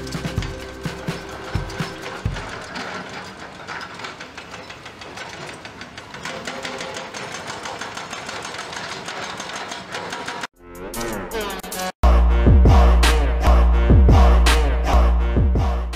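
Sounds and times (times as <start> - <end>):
excavator diesel engines: 0.0 - 10.5
rapid mechanical clatter: 0.0 - 10.5.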